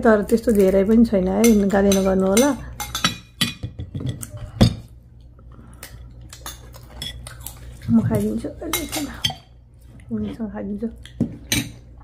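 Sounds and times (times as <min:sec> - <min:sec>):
cutlery clinking on ceramic plates: 0:01.4 - 0:04.8.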